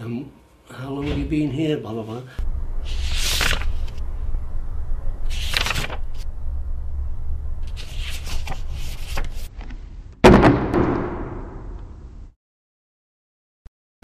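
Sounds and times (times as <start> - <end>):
low hum: 2.4 - 12.3
paper rustling: 2.8 - 4.0, 5.2 - 6.3, 7.6 - 9.9.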